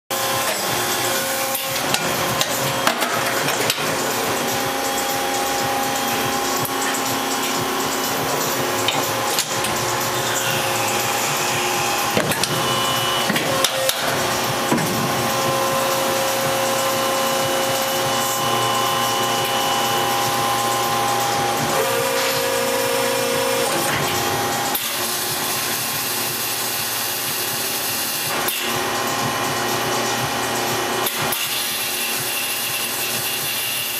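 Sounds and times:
machine hum and whine: 0:00.1 - 0:33.9
sharp clicks and knocks: 0:00.3 - 0:22.6.

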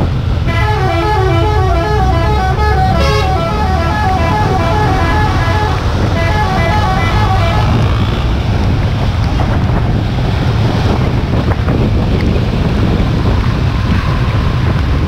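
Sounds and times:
engine road and wind rumble: 0:00.0 - 0:15.0
musical bus horn tune: 0:00.4 - 0:08.1.

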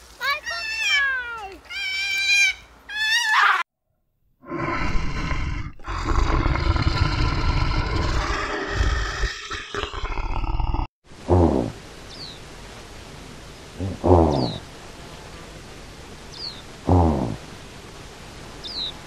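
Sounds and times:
bear growling: 0:04.4 - 0:10.9.

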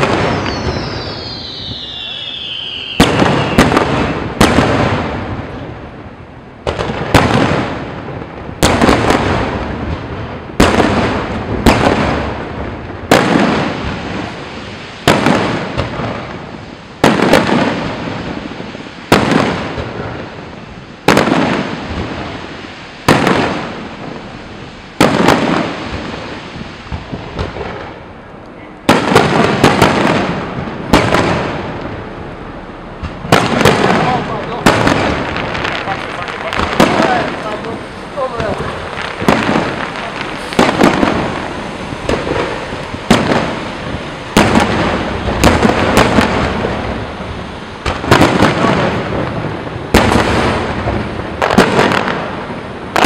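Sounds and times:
firework shells bursting: 0:28.8 - 0:53.0.

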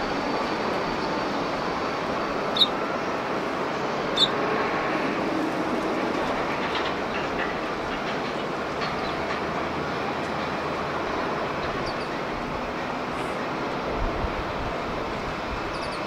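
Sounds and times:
airport traffic noise: 0:00.0 - 0:16.0
wind: 0:00.0 - 0:16.0
sparrows chirping: 0:02.5 - 0:02.8, 0:04.2 - 0:04.4, 0:11.8 - 0:12.2, 0:15.7 - 0:16.0.

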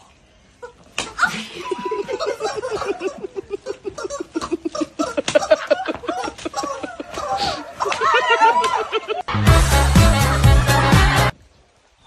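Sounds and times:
women laughing hard: 0:00.6 - 0:09.3.

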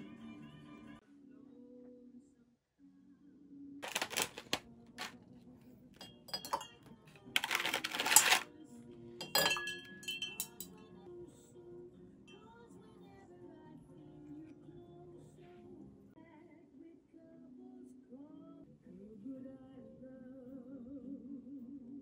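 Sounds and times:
ice cubes clinking in glass: 0:03.8 - 0:05.1, 0:06.0 - 0:06.7, 0:07.4 - 0:08.4, 0:09.2 - 0:10.7
ice rattling: 0:03.8 - 0:05.1, 0:06.3 - 0:06.7, 0:07.4 - 0:08.4, 0:09.2 - 0:10.7.

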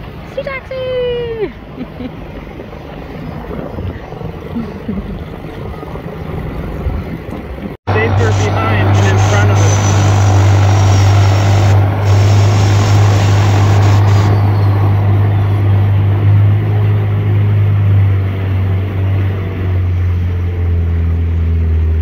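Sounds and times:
water and wind hiss: 0:00.0 - 0:21.8
outboard motor droning: 0:00.0 - 0:22.0.

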